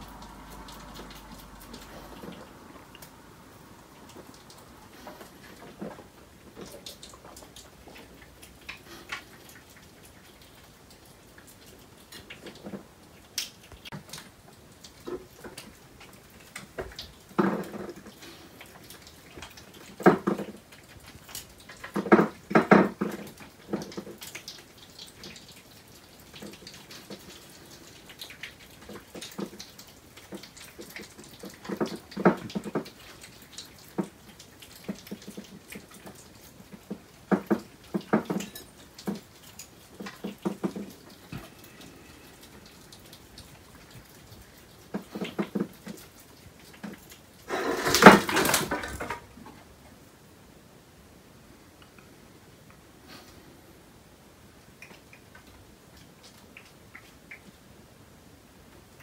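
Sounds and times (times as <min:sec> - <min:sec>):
animals chewing nuts: 0:00.0 - 0:49.1
knocks and clatters: 0:47.5 - 0:49.6.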